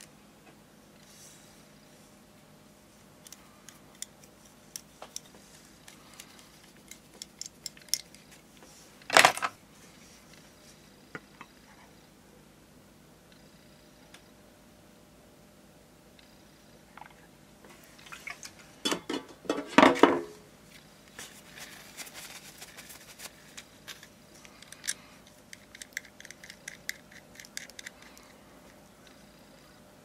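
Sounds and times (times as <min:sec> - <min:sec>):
tissue rustling: 0:21.2 - 0:24.0.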